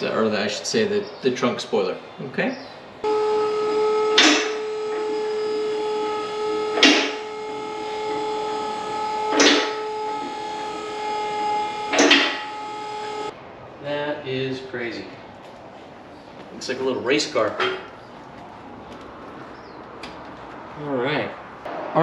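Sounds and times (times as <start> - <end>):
car lift whining: 2.8 - 13.4, 15.2 - 22.0
car lift hissing whoosh: 3.2 - 13.3.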